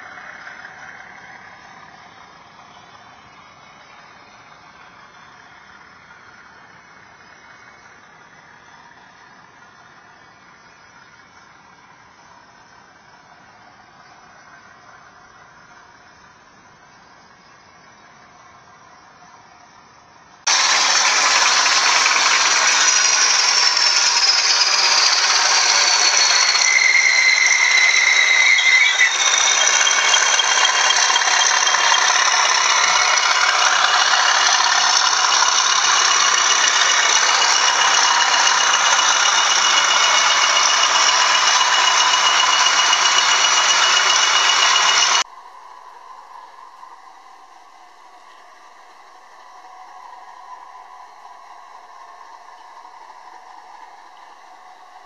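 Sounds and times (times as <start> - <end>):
model locomotive engine rattling: 20.4 - 45.3
high whistling tone: 20.5 - 48.0.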